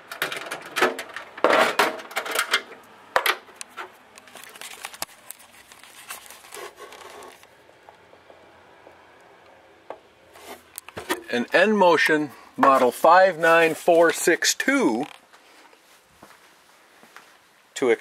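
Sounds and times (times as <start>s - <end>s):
plastic dispenser clicking and rattling: 0.1s - 3.4s
light clicking and rubbing: 3.6s - 7.5s.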